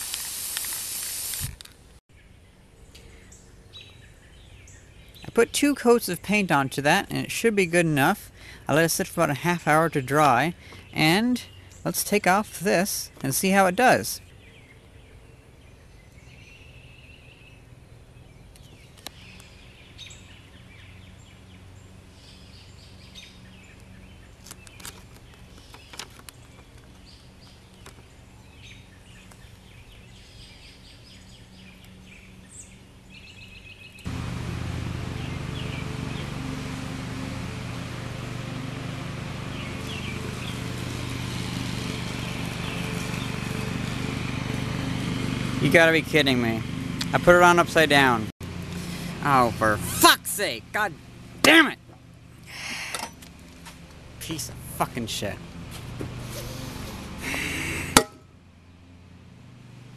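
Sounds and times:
birds chirping: 2.1s - 7.4s, 8.0s - 57.9s.

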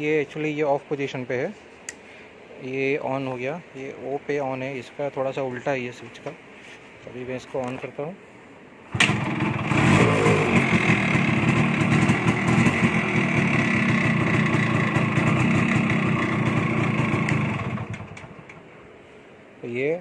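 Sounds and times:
motorcycle engine running: 9.0s - 18.5s.

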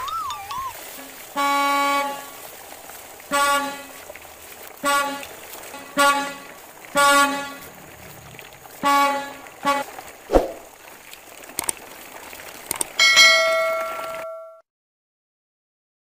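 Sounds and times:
truck horn honking: 1.0s - 2.4s, 3.3s - 4.0s, 4.8s - 7.8s, 8.8s - 9.9s
falling swoosh: 10.3s - 10.7s
bell chime: 13.0s - 14.6s.

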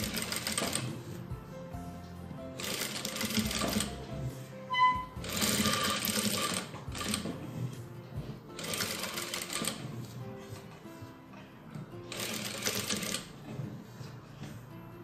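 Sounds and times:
sewing machine stitching: 0.0s - 1.2s, 2.6s - 4.1s, 5.1s - 7.8s, 8.5s - 10.2s, 12.1s - 13.8s
soft background music: 0.0s - 15.0s
brief high tone: 4.7s - 5.2s.

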